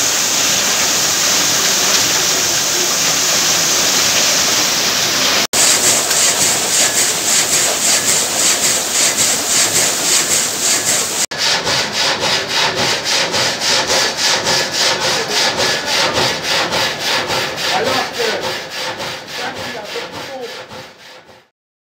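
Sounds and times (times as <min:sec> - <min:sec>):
frame saw rasping through log: 0:05.0 - 0:21.5.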